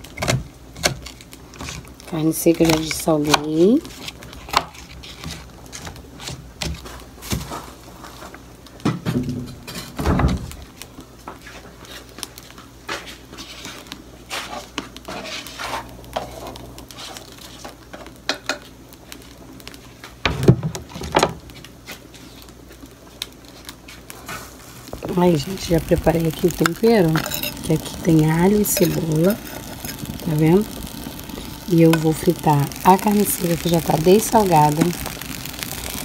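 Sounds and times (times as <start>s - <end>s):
pot and utensils knocking and clinking: 27.1s - 27.7s.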